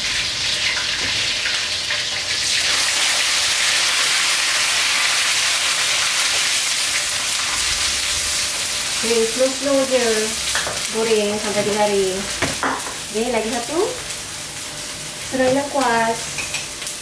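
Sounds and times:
vegetables sizzling in oil: 0:00.0 - 0:17.0.

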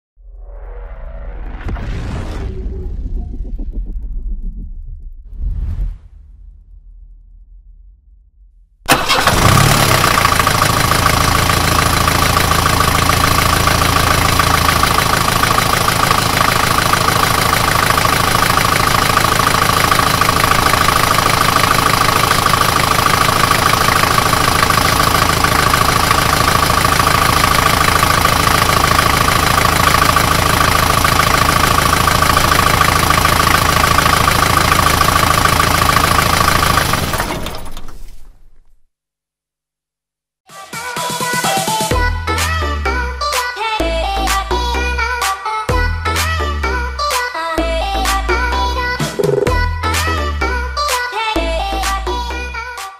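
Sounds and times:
bus engine idling: 0:08.9 - 0:38.1.

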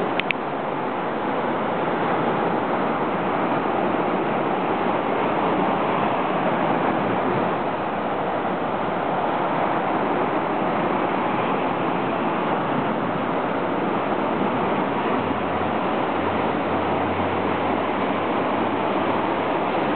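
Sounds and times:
wind: 0:00.0 - 0:19.9.

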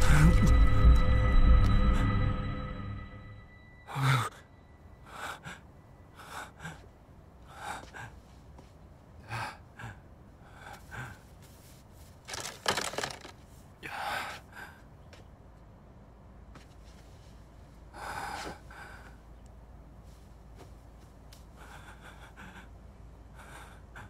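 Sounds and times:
person breathing heavily: 0:03.8 - 0:08.6, 0:09.2 - 0:11.7, 0:13.8 - 0:14.9, 0:17.9 - 0:19.4, 0:21.4 - 0:24.0.

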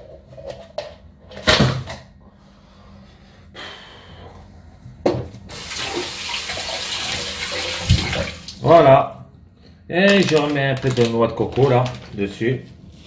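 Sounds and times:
tap water running into sink: 0:05.5 - 0:08.6.

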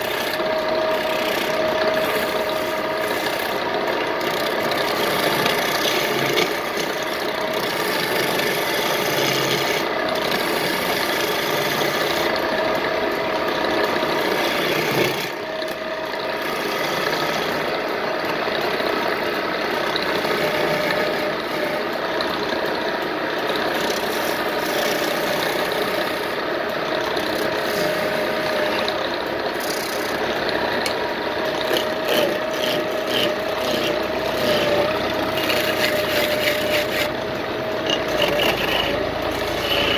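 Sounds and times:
chisel scraping wood: 0:00.0 - 0:12.4, 0:14.1 - 0:15.8, 0:16.4 - 0:17.8, 0:19.9 - 0:21.8, 0:23.8 - 0:26.2, 0:27.1 - 0:29.0, 0:29.6 - 0:30.2, 0:30.8 - 0:37.2, 0:37.8 - 0:39.9
lathe humming: 0:00.0 - 0:39.9.

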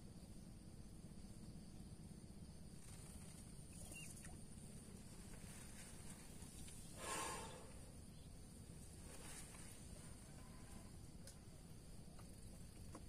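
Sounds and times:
low background hiss: 0:00.0 - 0:13.0
soft rustle of fishing gear: 0:04.9 - 0:07.4, 0:08.8 - 0:10.9.

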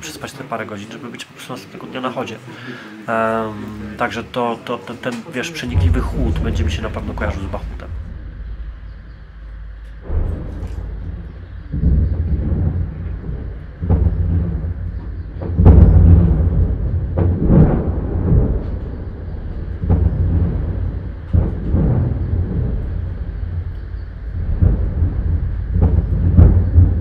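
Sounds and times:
artillery booms with rolling rumble: 0:05.6 - 0:27.0.

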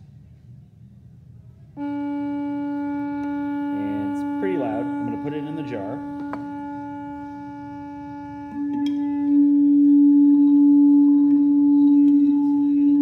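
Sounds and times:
steady test tone: 0:01.8 - 0:13.0.

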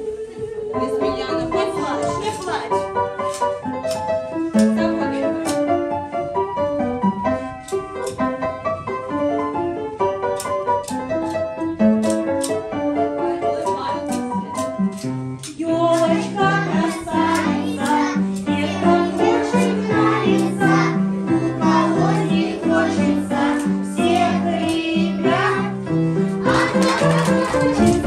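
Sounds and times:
instrumental accompaniment: 0:00.0 - 0:28.0
children singing together: 0:15.9 - 0:28.0.

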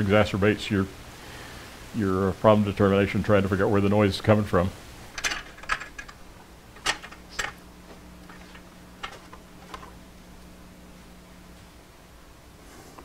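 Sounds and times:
metal parts clicking and tapping: 0:05.1 - 0:06.2, 0:06.8 - 0:07.6, 0:08.3 - 0:10.0.

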